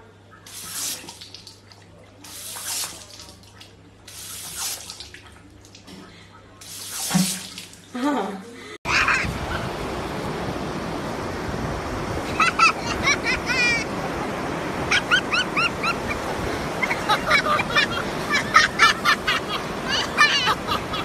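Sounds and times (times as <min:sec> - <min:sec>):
surf washing on beach: 0:08.9 - 0:21.0.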